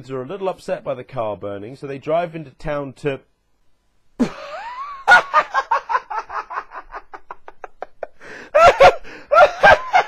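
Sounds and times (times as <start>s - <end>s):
man laughing hard: 4.2s - 10.0s.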